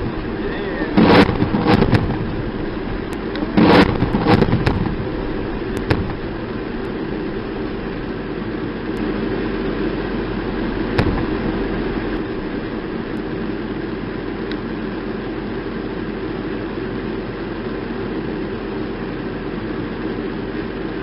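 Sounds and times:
sharp crack: 0:00.0 - 0:08.1, 0:10.5 - 0:13.3
military vehicle engine droning: 0:00.0 - 0:21.0.

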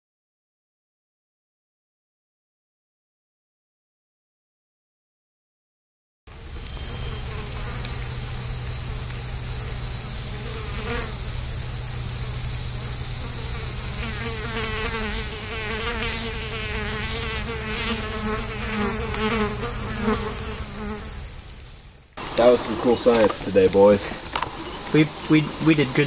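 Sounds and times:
low hum: 0:06.3 - 0:15.6
high-pitched insect drones: 0:06.3 - 0:26.0.

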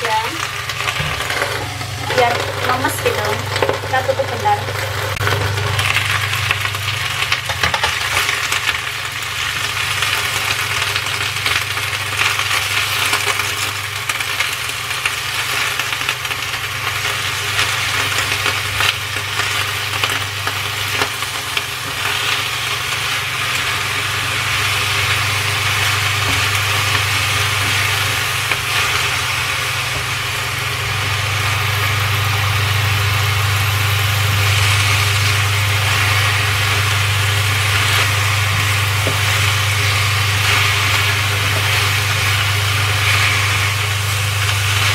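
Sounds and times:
vegetables sizzling in oil: 0:00.0 - 0:44.9
low hum: 0:20.4 - 0:44.9.

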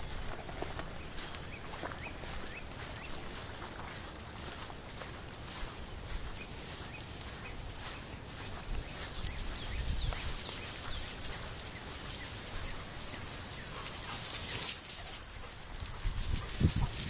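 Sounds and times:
grass and brush rustling: 0:00.0 - 0:17.0
small birds chirping: 0:00.0 - 0:17.0
wind rumble on microphone: 0:08.4 - 0:11.3, 0:15.6 - 0:17.0.

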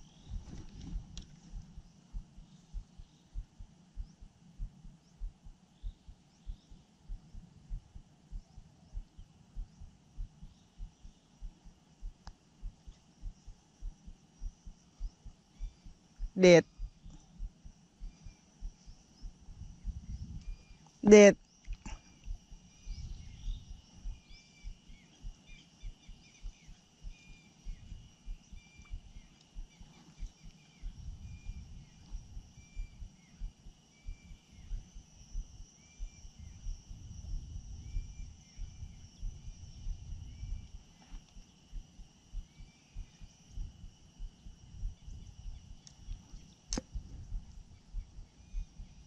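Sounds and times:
wind buffeting microphone: 0:00.0 - 0:01.8, 0:19.2 - 0:20.7, 0:22.8 - 0:24.2, 0:30.4 - 0:33.5, 0:34.1 - 0:40.9, 0:44.6 - 0:49.0
birds chirping: 0:00.0 - 0:49.0
insects buzzing: 0:00.0 - 0:49.0
sharp click: 0:45.8 - 0:47.0.

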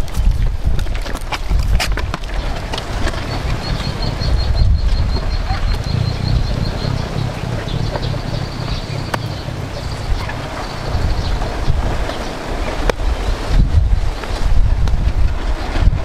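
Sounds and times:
wind rumbling on microphone: 0:00.0 - 0:16.0.

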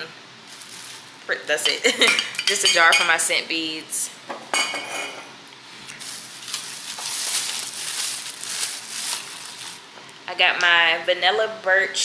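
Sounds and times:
packaging crinkling and rustling: 0:00.5 - 0:01.3, 0:05.8 - 0:09.9.

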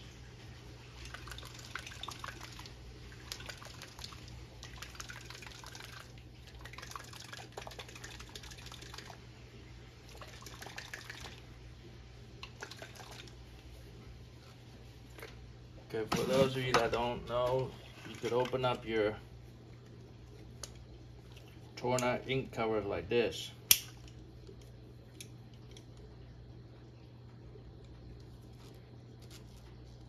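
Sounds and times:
liquid sloshing in a bottle: 0:12.4 - 0:21.8.

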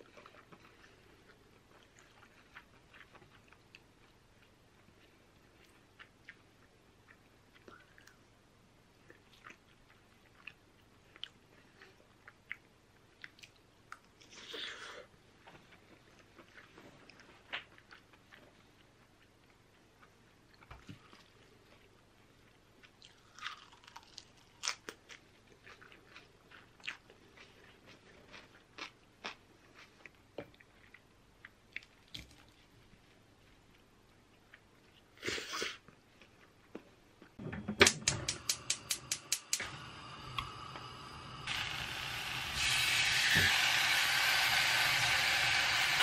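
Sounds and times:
chewing and crunching: 0:00.0 - 0:08.3, 0:09.0 - 0:14.5, 0:15.4 - 0:32.7
gas burner hissing: 0:37.4 - 0:46.0
gas stove igniter clicking: 0:37.7 - 0:40.5.

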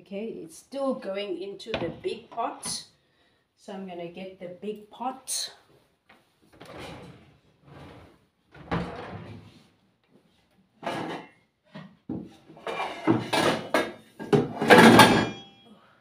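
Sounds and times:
cupboard doors and drawers: 0:06.6 - 0:09.7
short metallic ring: 0:15.0 - 0:15.7.

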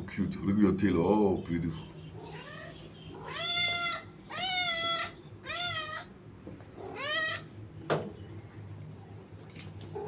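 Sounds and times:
low steady hum: 0:00.0 - 0:10.0
cat meowing: 0:02.2 - 0:06.1, 0:06.8 - 0:07.5.

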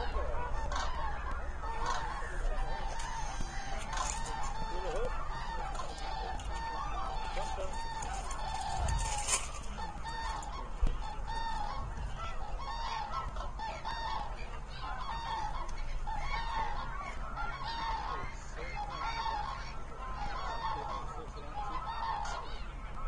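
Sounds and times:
cranes trumpeting calls: 0:00.0 - 0:23.0.

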